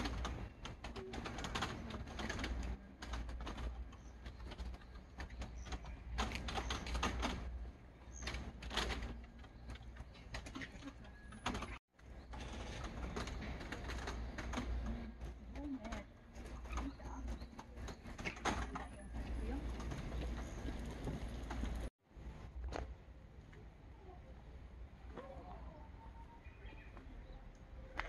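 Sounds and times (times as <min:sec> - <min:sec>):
scattered clicks and knocks: 0:00.0 - 0:07.6, 0:08.2 - 0:21.9.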